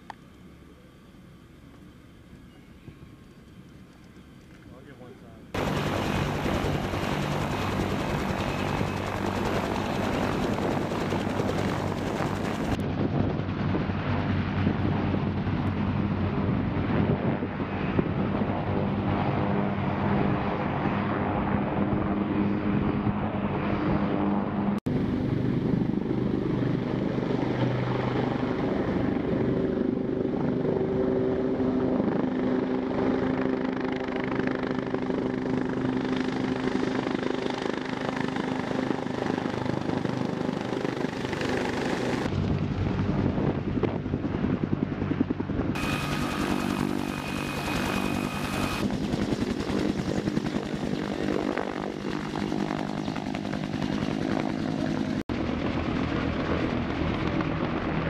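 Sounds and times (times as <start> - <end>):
helicopter turbine drone: 0.0 - 58.0
rotor blades beating: 5.6 - 12.8, 45.7 - 55.1.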